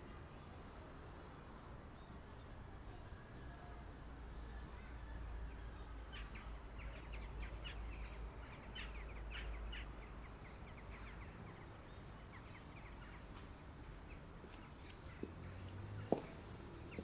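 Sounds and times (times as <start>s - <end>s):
faint low street hum: 0.0s - 17.0s
birds chirping: 6.1s - 17.0s.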